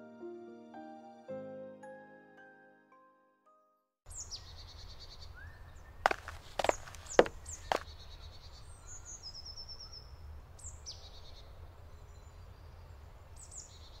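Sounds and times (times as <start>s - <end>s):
small birds chirping: 4.1s - 14.0s
short crunch: 6.0s - 7.9s.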